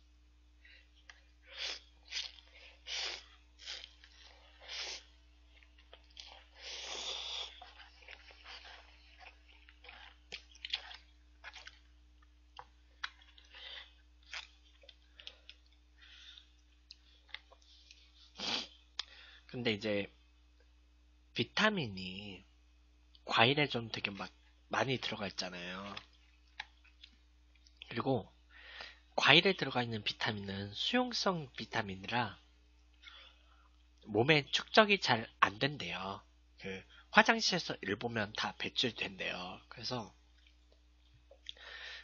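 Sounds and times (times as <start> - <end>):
person slurping noodles: 1.6 - 5.1, 6.2 - 8.9, 18.4 - 18.7.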